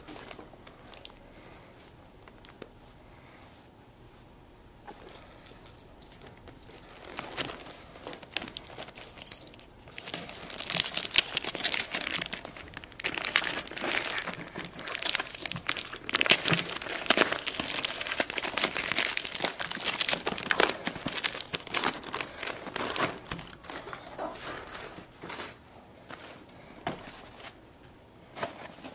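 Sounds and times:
plastic bag crinkling and tearing: 0.0s - 1.2s, 2.0s - 2.7s, 6.1s - 25.6s.

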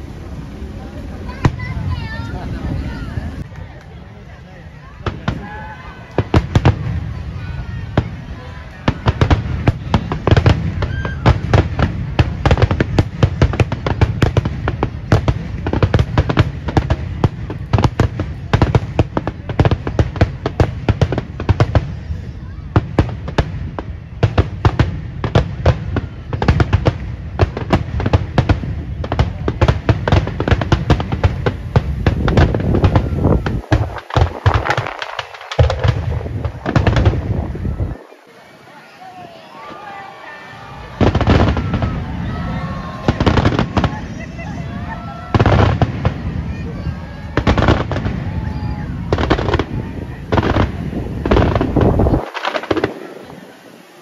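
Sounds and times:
firework crackle: 0.0s - 54.0s
firework shells booming: 5.0s - 38.0s, 40.6s - 53.6s
low booming rumble: 27.1s - 34.9s, 35.6s - 38.0s, 41.0s - 52.8s.

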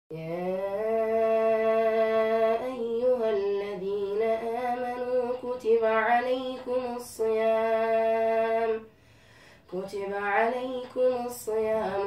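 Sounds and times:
boy reciting melodically: 9.7s - 12.0s.

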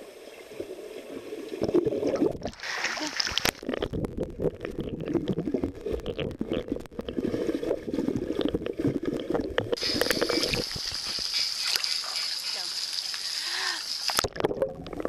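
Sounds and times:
underwater gurgling and bubbles: 0.0s - 15.0s
water hissing: 9.8s - 14.3s.

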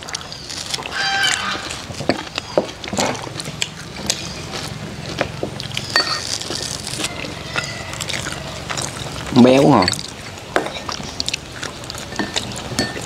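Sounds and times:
spoons clinking on ceramic bowls: 5.8s - 6.7s, 12.0s - 13.0s.

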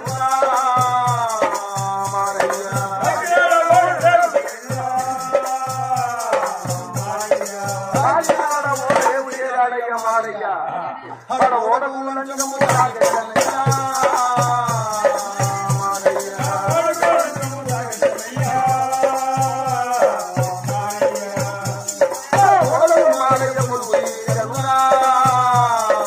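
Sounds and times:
hand drums beating: 0.0s - 9.4s, 12.4s - 26.0s
jingling rattle: 12.4s - 26.0s.

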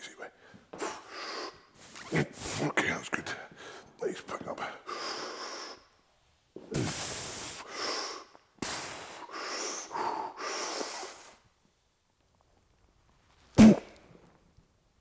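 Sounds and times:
man breathing hard: 0.4s - 1.8s, 4.6s - 5.9s, 6.8s - 11.4s.

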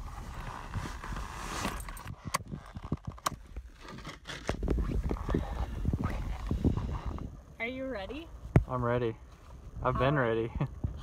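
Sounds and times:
ski gear scraping and rustling: 0.0s - 7.2s.

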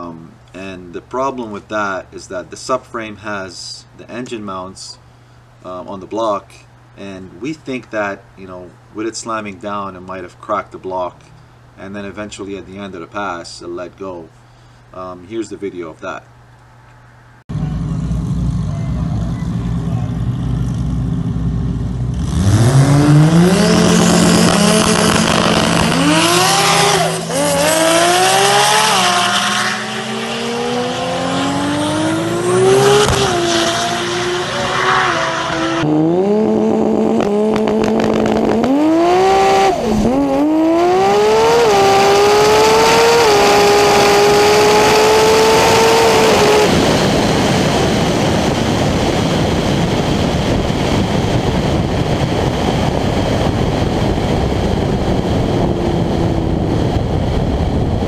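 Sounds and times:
wind and road noise: 4.1s - 58.0s
car engine at full throttle: 17.5s - 58.0s.

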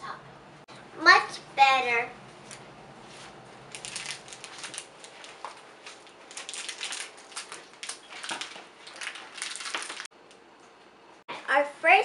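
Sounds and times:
foil wrapper crackling: 3.7s - 10.1s.

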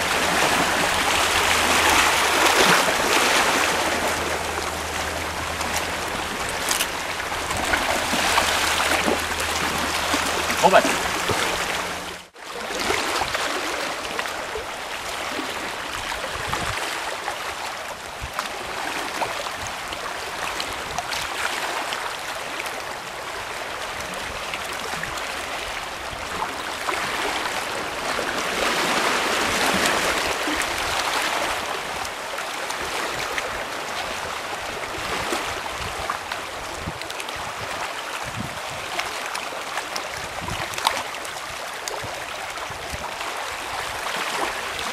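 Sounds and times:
sea water splashing on rocks: 0.0s - 14.5s.

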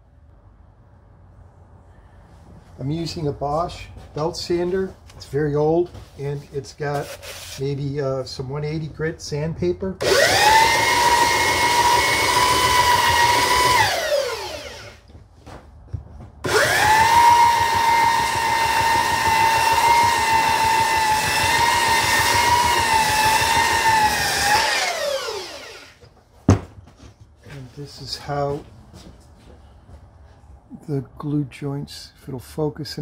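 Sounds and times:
belt sander sanding wood: 10.0s - 15.0s, 16.4s - 25.9s.

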